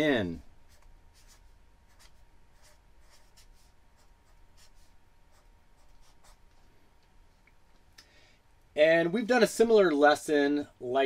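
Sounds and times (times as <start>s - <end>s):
marker writing on paper: 0.7s - 6.5s.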